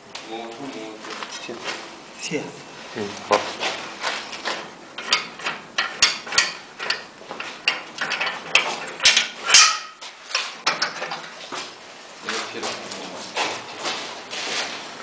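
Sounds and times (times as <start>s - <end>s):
machine ratchet clicking and clacking: 5.0s - 11.3s.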